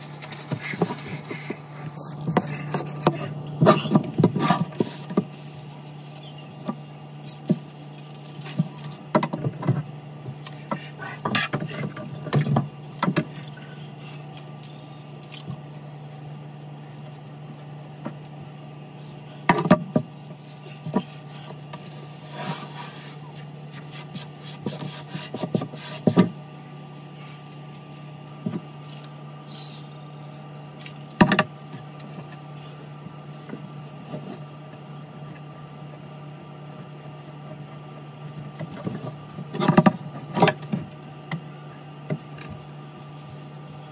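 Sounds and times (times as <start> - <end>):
steady low hum: 0.0 - 43.9.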